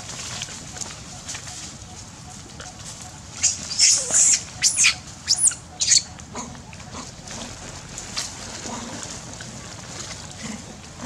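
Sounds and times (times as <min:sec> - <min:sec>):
monkey screaming: 0:03.4 - 0:07.1.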